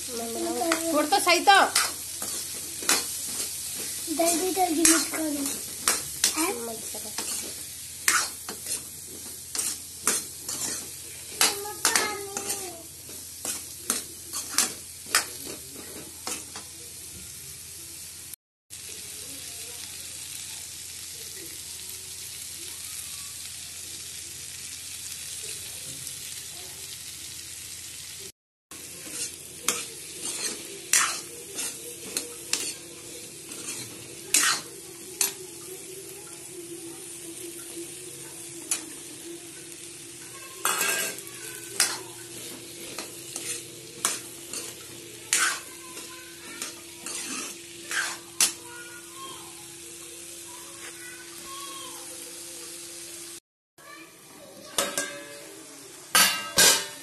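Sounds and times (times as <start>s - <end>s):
vegetables sizzling in a pan: 0.0s - 57.0s
steel spoon scraping a pan: 0.1s - 16.7s, 28.8s - 35.4s, 40.2s - 48.7s.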